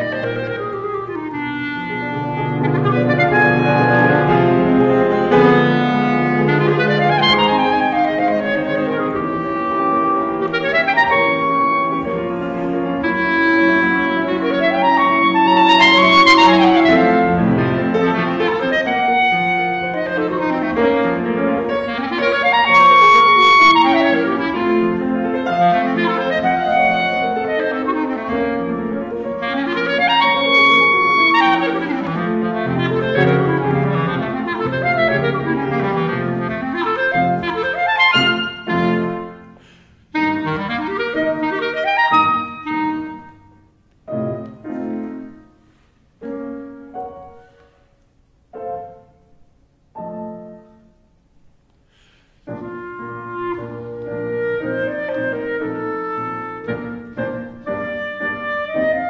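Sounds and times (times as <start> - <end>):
clarinet fast runs: 0.0 - 39.4, 52.5 - 59.0
piano accompaniment: 0.0 - 59.0.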